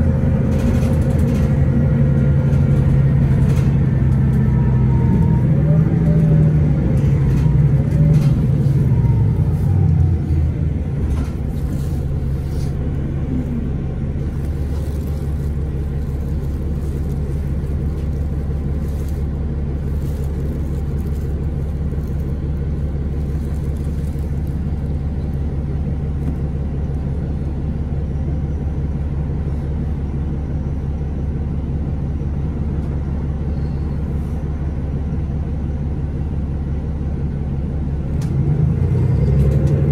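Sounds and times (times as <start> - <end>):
bus diesel engine droning: 0.0 - 39.9.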